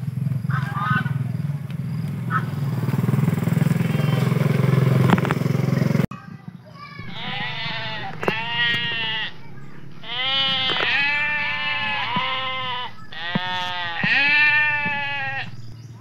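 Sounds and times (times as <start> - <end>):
goat kid bleating: 6.8 - 15.7
low steady hum: 7.0 - 16.0.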